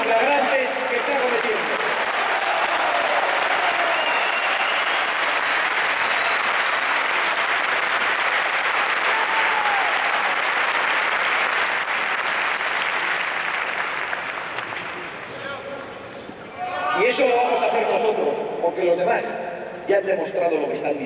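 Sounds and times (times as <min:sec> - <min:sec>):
audience applauding: 0:00.0 - 0:15.5.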